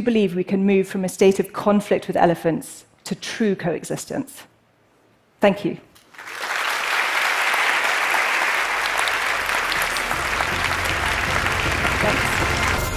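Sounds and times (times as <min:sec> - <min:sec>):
large audience applauding: 0:06.1 - 0:12.9.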